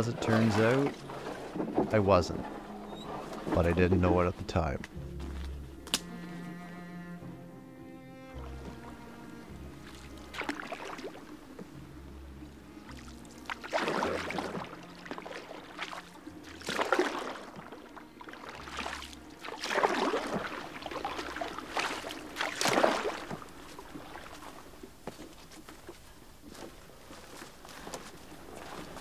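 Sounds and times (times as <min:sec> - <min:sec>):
canoe paddle splashing in water: 0:00.0 - 0:03.8, 0:09.8 - 0:11.8, 0:12.8 - 0:25.3.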